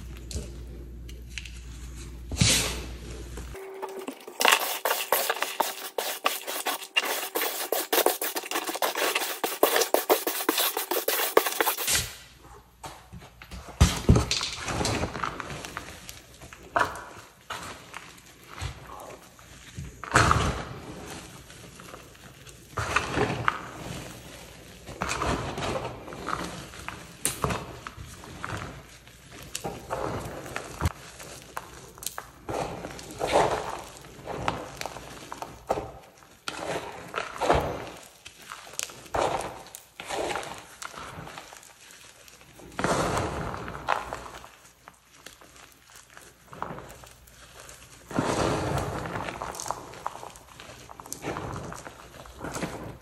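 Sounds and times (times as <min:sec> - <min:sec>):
hands scratching chalk on metal: 0:03.6 - 0:12.0.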